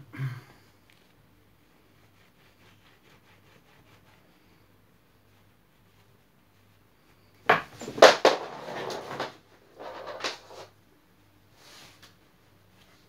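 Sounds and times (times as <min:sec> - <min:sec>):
scraping and rubbing: 0:05.3 - 0:10.8
sharp knocks and clacks: 0:07.5 - 0:10.4
soft rustle: 0:11.5 - 0:13.0.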